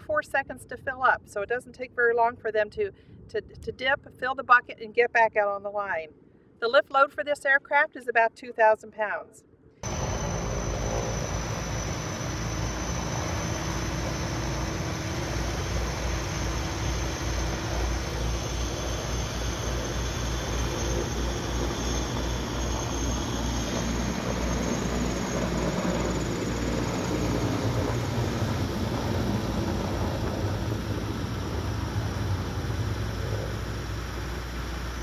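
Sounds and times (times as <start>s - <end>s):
faint high whine: 9.8s - 35.0s
helicopter rotor beat: 9.8s - 35.0s
turbine roar: 9.8s - 35.0s.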